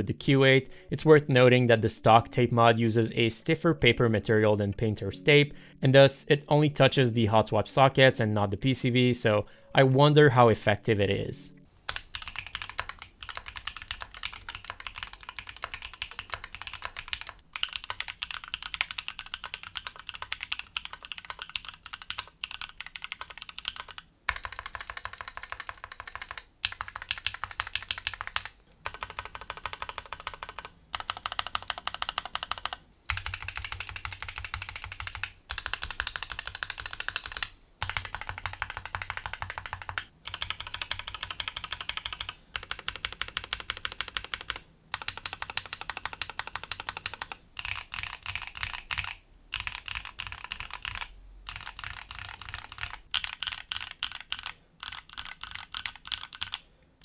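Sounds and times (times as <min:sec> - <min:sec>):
fast typing on mechanical keyboard: 0:11.9 - 0:56.6.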